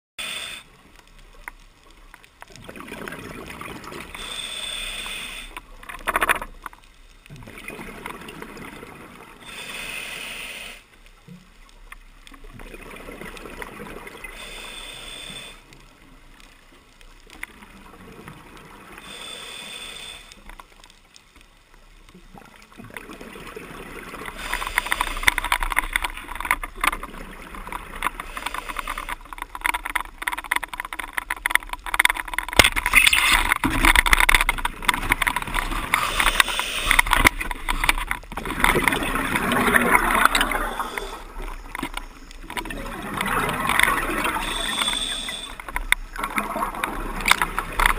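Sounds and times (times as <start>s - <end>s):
regulator breathing hiss: 0.2s - 0.8s, 4.1s - 5.6s, 9.4s - 11.0s, 14.3s - 15.7s, 19.0s - 20.5s, 24.4s - 25.4s, 28.2s - 29.2s, 36.0s - 37.2s, 44.2s - 45.7s
exhaled bubbles gurgling: 2.5s - 4.8s, 7.3s - 9.6s, 12.3s - 14.8s, 22.3s - 29.8s, 32.3s - 47.9s.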